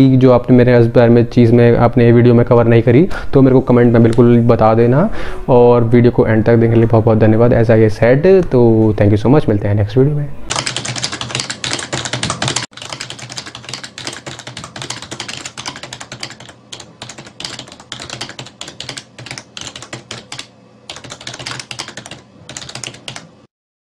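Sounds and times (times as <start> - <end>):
computer keyboard typing: 10.5 - 23.4.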